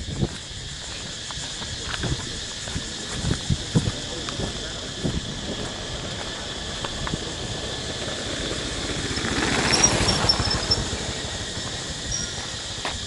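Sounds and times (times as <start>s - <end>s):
motorbike passing: 3.9s - 13.0s
high squeaks: 9.7s - 10.9s, 12.1s - 12.7s.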